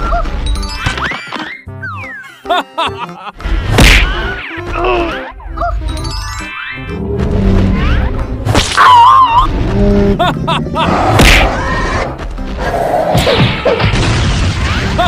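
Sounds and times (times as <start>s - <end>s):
background music: 0.0s - 15.0s
cartoon whacks and thuds: 3.7s - 4.3s, 11.1s - 11.6s.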